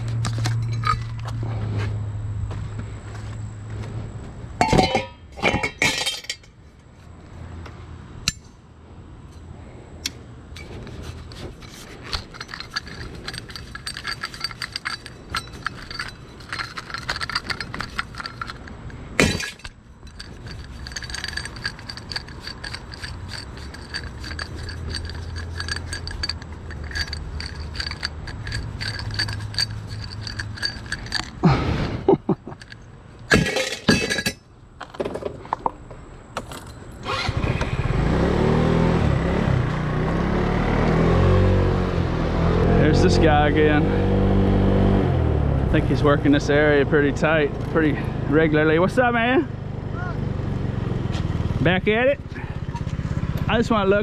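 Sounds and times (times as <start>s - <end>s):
low steady hum: 0.0s - 37.0s
hard objects clinking and rattling: 0.2s - 1.4s, 4.6s - 6.5s, 10.6s - 31.6s, 32.2s - 35.6s.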